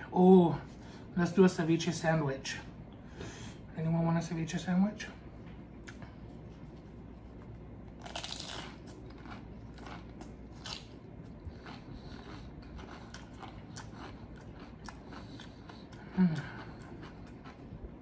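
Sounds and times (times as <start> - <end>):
chewing with crackles: 5.8 - 18.0
crunching bites of chips: 7.3 - 18.0.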